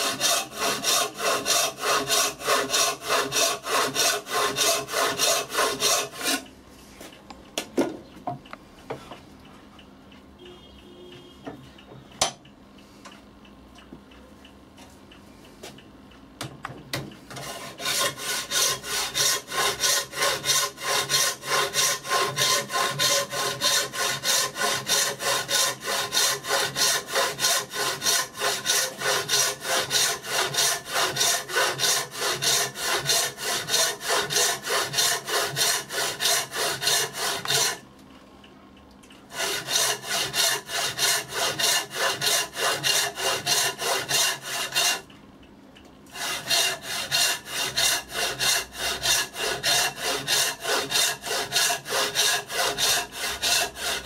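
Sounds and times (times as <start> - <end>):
hand saw ripping wood: 0.0 - 6.4, 17.4 - 37.8, 39.3 - 45.1, 46.1 - 54.0.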